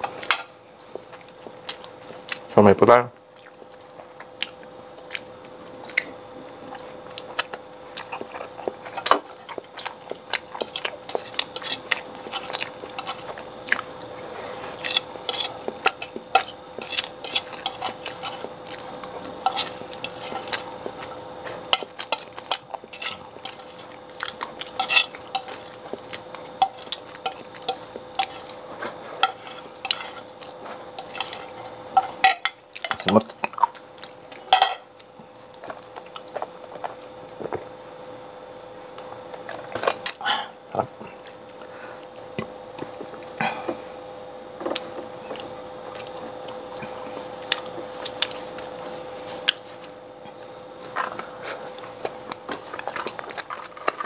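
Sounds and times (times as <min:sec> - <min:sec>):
steady hum: 0:00.0 - 0:54.0
cutlery clinking on dishes: 0:34.5 - 0:34.9.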